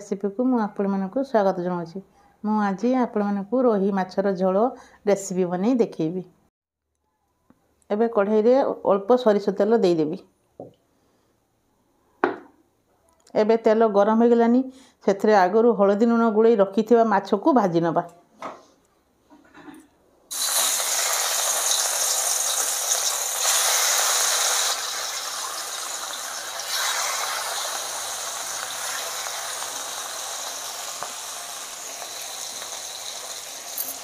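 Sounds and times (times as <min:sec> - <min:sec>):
fish sizzling in hot oil: 0:20.3 - 0:34.0.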